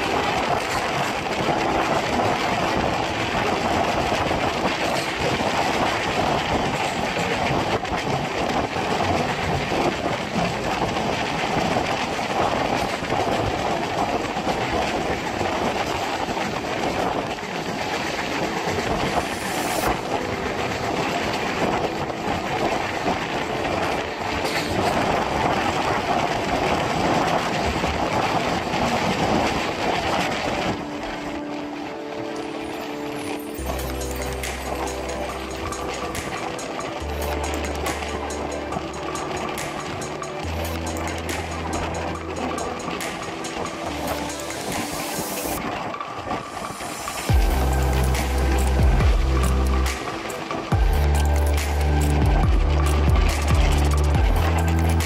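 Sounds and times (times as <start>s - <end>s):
train wheels clattering on rails: 0.0s - 55.0s.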